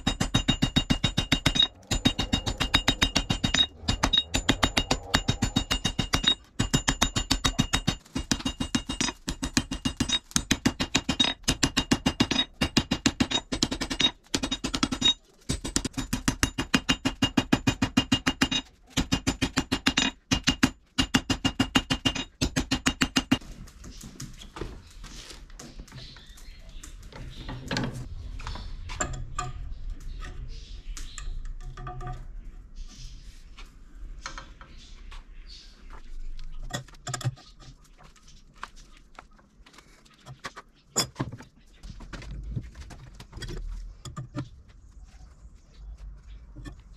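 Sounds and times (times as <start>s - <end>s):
hammer striking steel on anvil: 0.0s - 23.4s.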